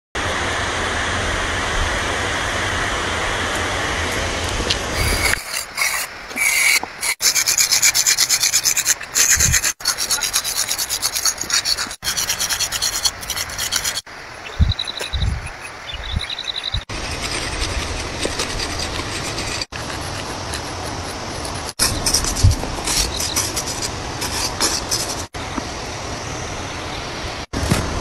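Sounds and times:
chalk scraping on concrete: 4.9s - 25.4s.

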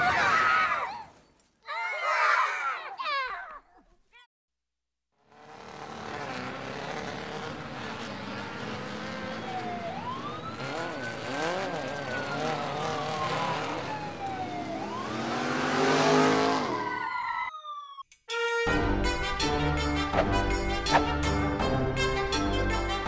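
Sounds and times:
toy race engine revving: 5.3s - 16.9s.

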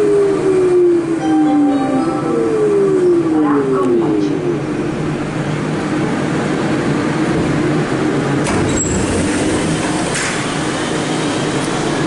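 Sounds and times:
metro car equipment rumble: 0.0s - 12.0s
train braking whine: 1.1s - 3.5s
short high beep: 1.2s - 2.9s.

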